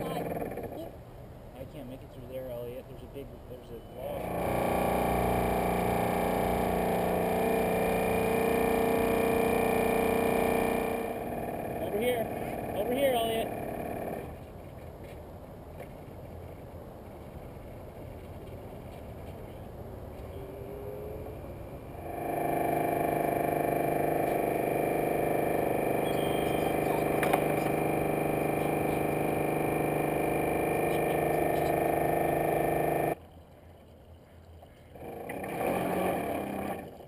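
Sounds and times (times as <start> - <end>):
model boat motor whine: 0.0 - 0.9, 4.0 - 14.4, 20.4 - 33.2, 35.0 - 37.0.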